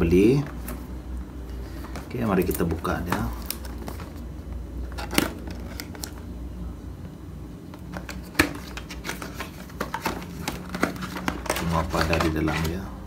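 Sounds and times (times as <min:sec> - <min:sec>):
cardboard box scraping and clicking: 0:08.2 - 0:12.8.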